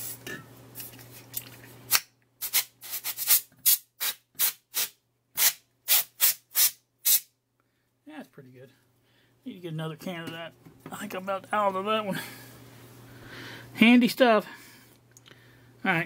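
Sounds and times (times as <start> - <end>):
compressed air can spraying: 1.9 - 7.3.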